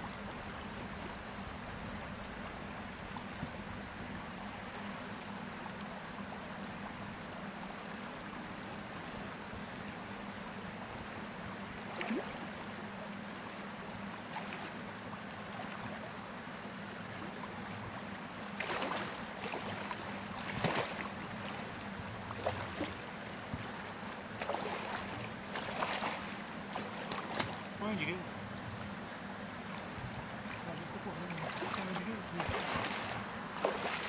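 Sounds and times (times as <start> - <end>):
water splashes: 10.6 - 28.6, 29.4 - 34.0.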